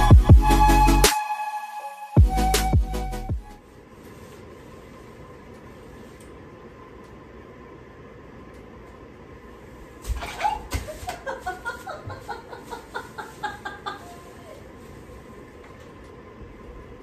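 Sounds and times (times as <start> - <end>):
woman laughing: 10.4 - 14.7.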